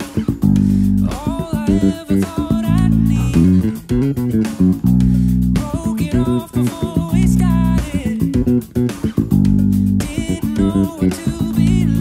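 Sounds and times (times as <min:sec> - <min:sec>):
backing track melody: 0:00.0 - 0:12.0
electric bass fingerstyle: 0:00.0 - 0:12.0.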